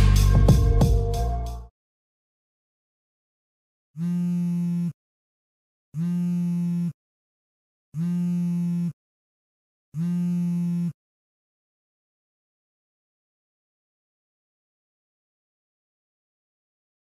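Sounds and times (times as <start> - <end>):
smartphone buzzing: 4.0 - 5.0, 6.0 - 7.0, 8.0 - 9.0, 10.0 - 11.0.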